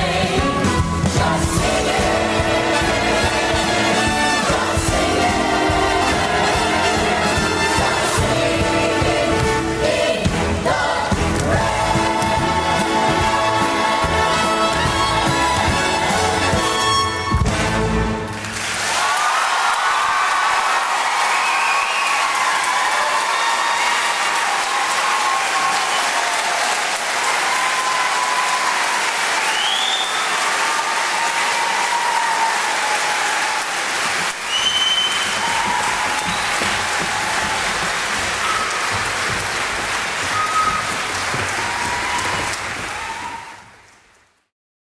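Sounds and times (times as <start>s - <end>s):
audience applauding: 18.2s - 44.5s
cheers and whistles: 18.9s - 39.0s, 40.2s - 43.9s.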